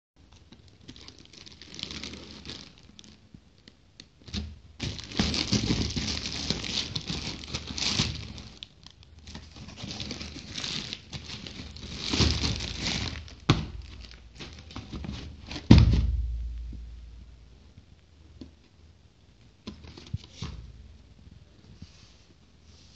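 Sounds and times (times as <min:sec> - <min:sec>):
packaging crinkling and tearing: 0:00.3 - 0:15.8
heavy thump: 0:15.7 - 0:17.4.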